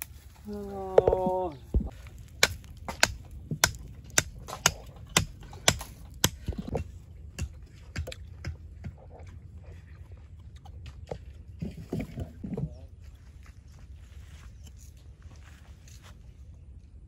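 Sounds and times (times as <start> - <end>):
straw and twigs fire crackling: 0.0 - 7.5.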